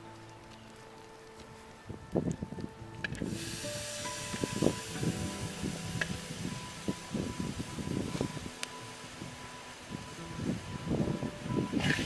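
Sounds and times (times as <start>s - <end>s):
spices sizzling in a wok: 3.2s - 12.0s.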